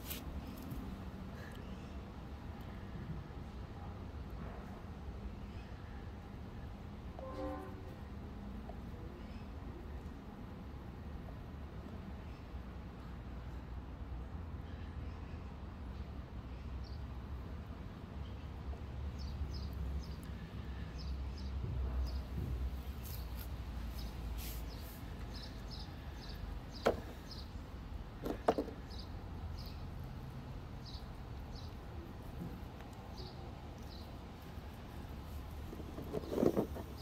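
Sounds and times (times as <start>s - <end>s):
rocks knocking in plastic tub: 26.8s - 27.2s, 28.2s - 28.8s.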